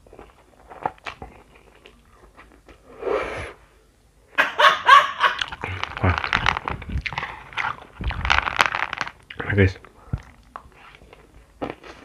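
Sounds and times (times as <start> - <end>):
man laughing loudly: 4.4 - 6.2.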